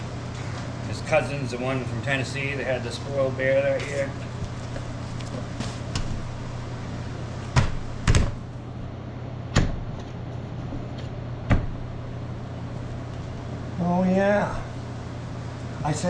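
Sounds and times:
low machine hum: 0.0s - 16.0s
sharp knocks: 7.6s - 8.4s, 9.5s - 10.1s, 11.5s - 11.8s.

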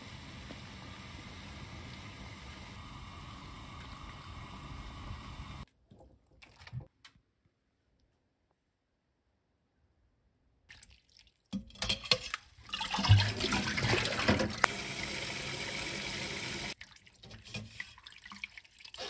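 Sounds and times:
water boiling in a pan: 0.0s - 5.6s.

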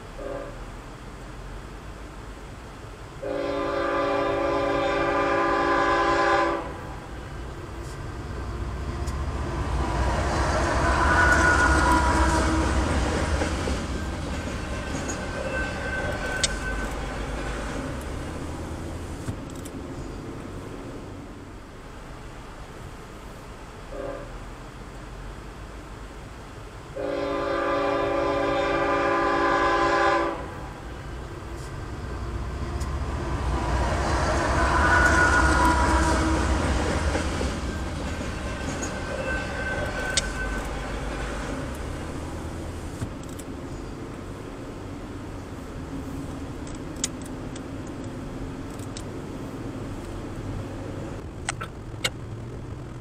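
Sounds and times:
road noise inside car: 0.0s - 53.0s
locomotive air horn blast: 0.2s - 0.6s, 3.2s - 7.0s, 9.8s - 13.5s, 23.9s - 24.4s, 27.0s - 30.8s, 33.0s - 42.0s.

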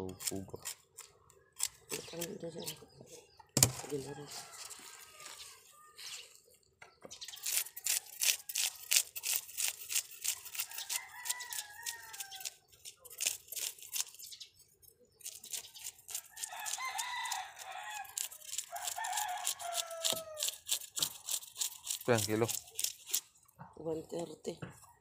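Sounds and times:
knife scraping fish scales: 0.1s - 2.8s, 7.2s - 14.4s, 15.2s - 23.3s
roosters crowing: 3.7s - 6.1s, 10.5s - 12.7s, 16.1s - 20.8s.

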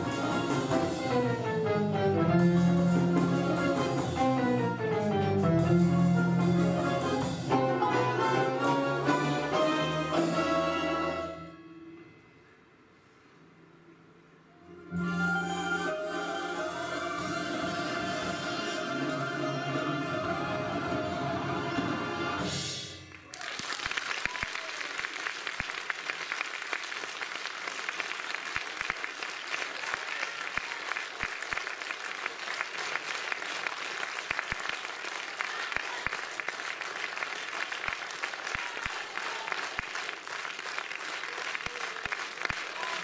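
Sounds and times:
audience applause: 23.1s - 43.0s.

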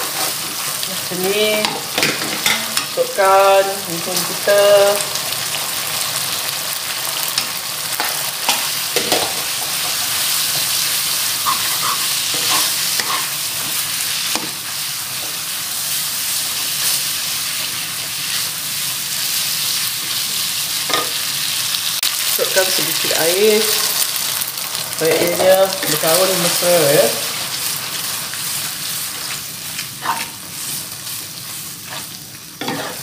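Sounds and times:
noodles sizzling in a wok: 0.0s - 33.0s
spatula scraping and knocking pan: 11.4s - 14.6s.

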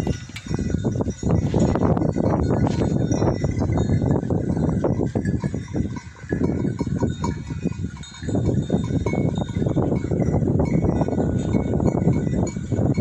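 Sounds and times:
rough rustling noise: 0.0s - 3.7s
small metal bells clinking: 0.0s - 13.0s.

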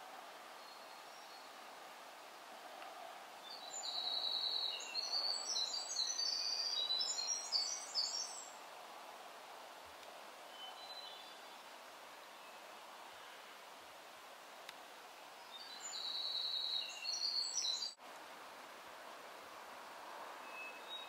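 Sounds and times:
faint woodland hiss: 0.0s - 21.0s
songbird rapid high song: 0.5s - 1.7s, 3.4s - 8.6s, 10.5s - 12.8s, 15.4s - 18.0s, 20.4s - 21.0s.

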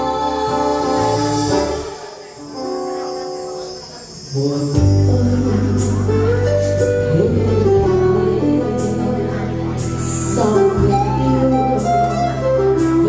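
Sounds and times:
woman singing into a microphone: 0.0s - 2.4s, 4.3s - 13.0s
acoustic guitar: 0.0s - 13.0s
keyboard: 0.0s - 13.0s
low bass: 4.8s - 13.0s.

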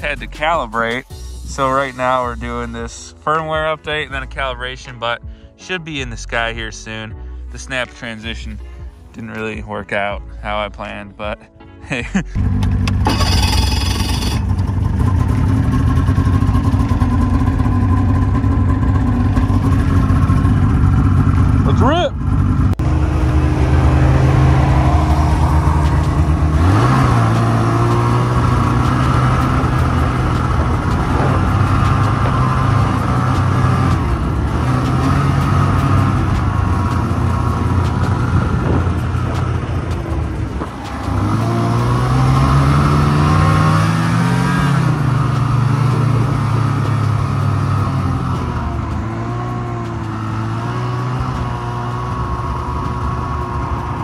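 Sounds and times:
snowmobile engine revving: 12.3s - 54.0s.

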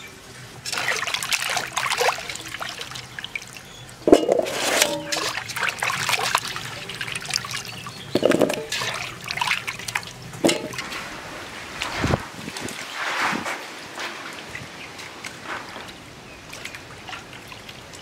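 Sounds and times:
hands splashing water in metal basin: 0.6s - 3.5s, 4.1s - 11.2s
water dripping into basin: 0.7s - 10.8s.

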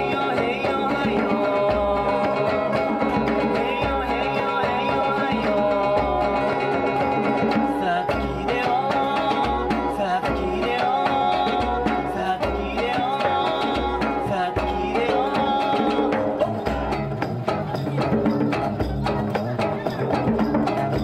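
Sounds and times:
acoustic guitar: 0.0s - 21.0s
hand drums beat: 0.0s - 21.0s.

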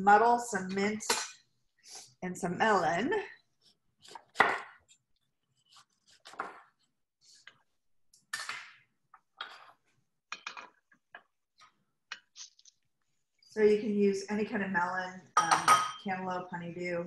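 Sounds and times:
knife cutting melon on board: 3.6s - 7.5s.

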